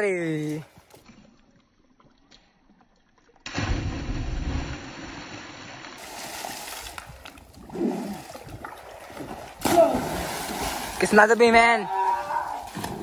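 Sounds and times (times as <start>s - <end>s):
water churning and sloshing: 0.7s - 13.0s
heavy splash into water: 3.5s - 7.0s, 7.7s - 11.1s.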